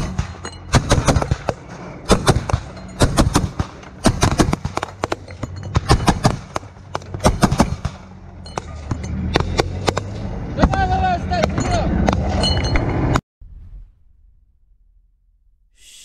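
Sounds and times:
gunfire bursts: 0.0s - 5.2s, 5.8s - 8.2s.

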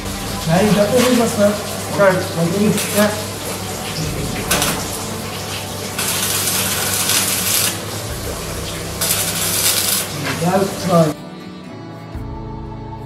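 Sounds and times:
arc welder crackling and sizzling: 0.0s - 11.2s
background music: 0.0s - 13.0s.

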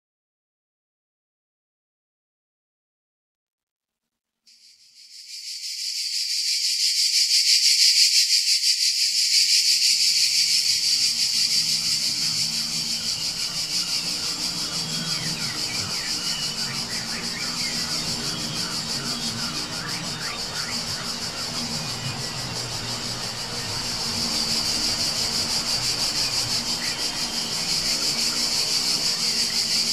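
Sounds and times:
insects buzzing: 4.5s - 29.9s.

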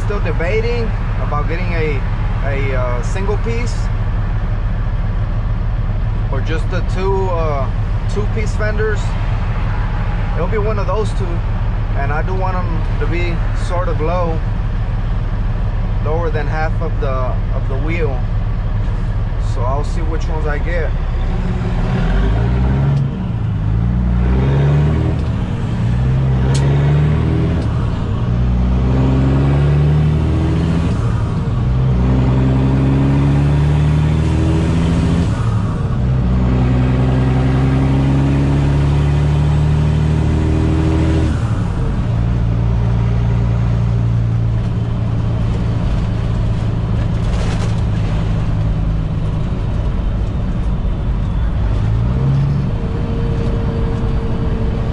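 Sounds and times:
truck diesel engine accelerating: 0.0s - 54.9s.

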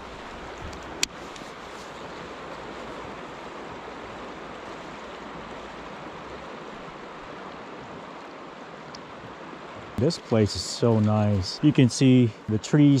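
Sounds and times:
river flowing over gravel: 0.0s - 13.0s.

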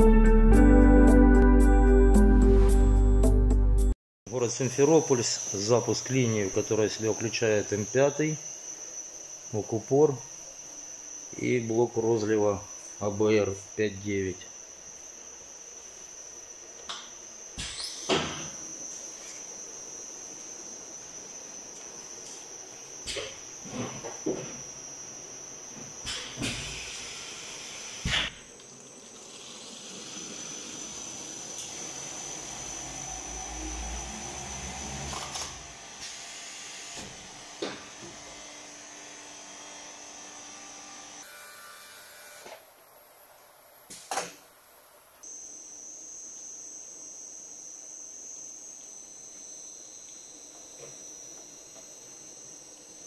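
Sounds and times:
machine high-pitched whine: 4.3s - 53.0s
hiss: 26.0s - 28.4s, 29.0s - 32.1s.

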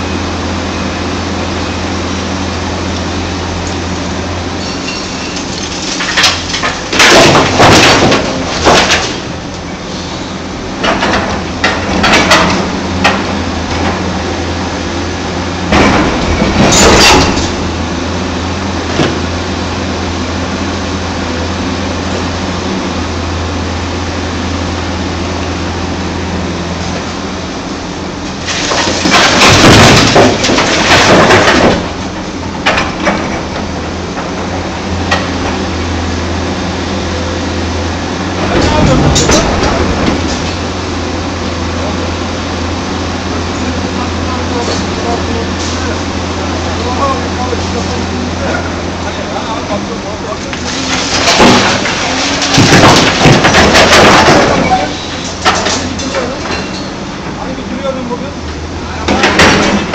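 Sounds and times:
diesel engine hum: 0.0s - 59.9s
rubble crashing into truck bed: 5.3s - 9.5s, 10.8s - 14.6s, 15.4s - 19.4s, 28.3s - 36.5s, 38.2s - 41.3s, 48.8s - 57.0s, 59.0s - 59.9s.

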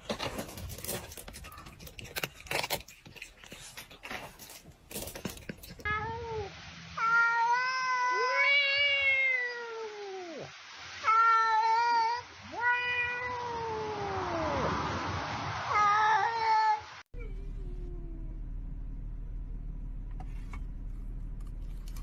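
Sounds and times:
cat meowing: 5.8s - 14.6s
faint low hum: 17.2s - 22.0s.

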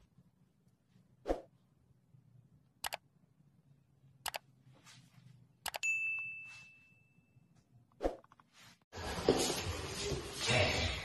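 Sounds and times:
bell ding: 5.8s - 7.5s.

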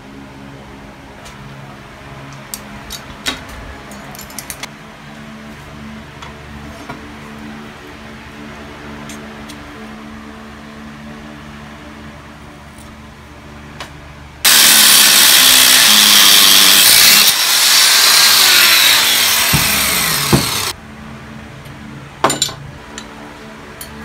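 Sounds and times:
angle grinder cutting steel: 14.5s - 20.8s.

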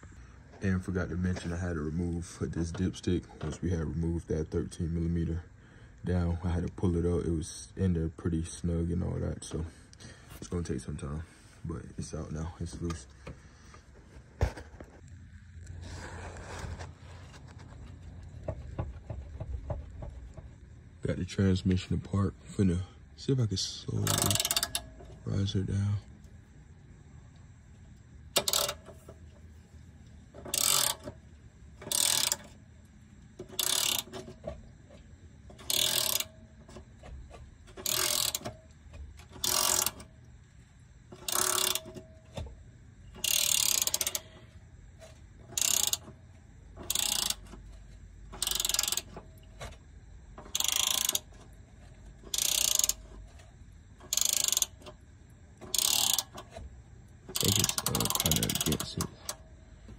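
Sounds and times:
socket ratchet clicking: 24.0s - 25.0s, 28.3s - 28.9s, 30.4s - 31.2s, 31.8s - 32.6s, 33.4s - 34.5s, 35.6s - 36.8s, 37.7s - 38.6s, 39.2s - 40.1s, 41.2s - 42.1s, 43.2s - 44.3s, 45.5s - 46.2s, 46.8s - 47.7s, 48.3s - 49.4s, 50.4s - 51.5s, 52.2s - 53.2s, 54.0s - 55.0s, 55.6s - 56.6s, 57.3s - 59.4s.

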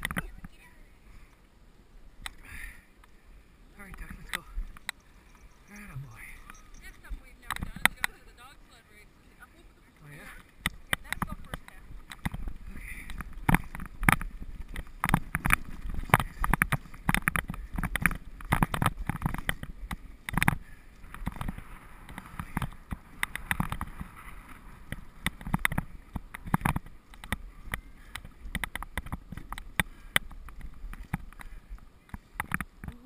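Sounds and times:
sled runners rumbling on snow: 3.7s - 33.0s
sled knocking and rattling: 10.6s - 31.8s.

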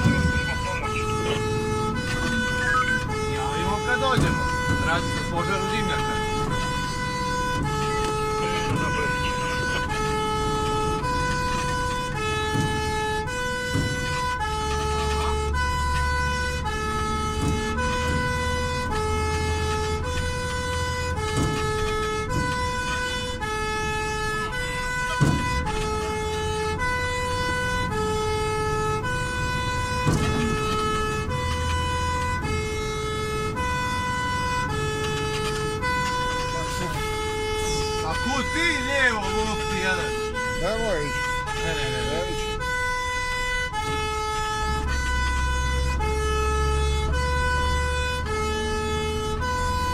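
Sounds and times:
engine rumble: 0.0s - 49.9s
two-tone fire engine siren: 0.0s - 49.9s.

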